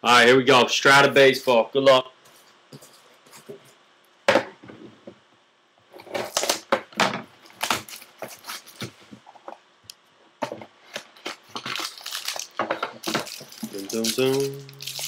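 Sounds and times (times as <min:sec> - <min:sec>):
cardboard ripping: 0:11.2 - 0:15.0
wrapper crinkling: 0:11.2 - 0:15.0.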